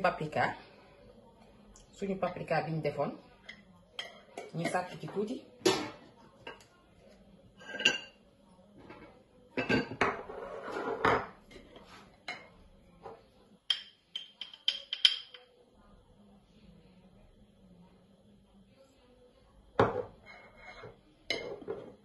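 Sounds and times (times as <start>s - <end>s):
spoon scraping a bowl: 9.9s - 11.9s, 20.2s - 21.9s.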